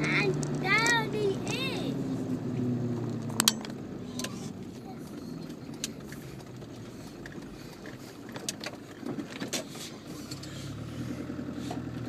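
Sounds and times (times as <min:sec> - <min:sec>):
vehicle engine running at low speed: 0:00.0 - 0:12.0.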